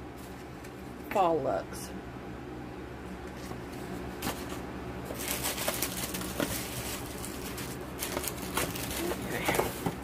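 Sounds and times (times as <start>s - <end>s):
steady low hum: 0.0s - 10.0s
packaging clicks and rustling: 5.1s - 10.0s.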